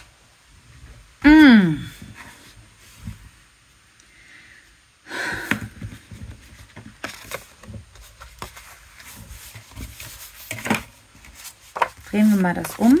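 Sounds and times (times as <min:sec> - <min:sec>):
paper rustle: 0:05.8 - 0:13.0.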